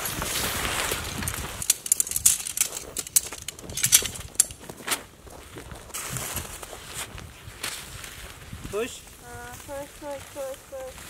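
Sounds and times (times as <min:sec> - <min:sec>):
nylon tent fabric rustling: 0:00.0 - 0:11.0
sharp crinkles and light clicks: 0:00.0 - 0:11.0.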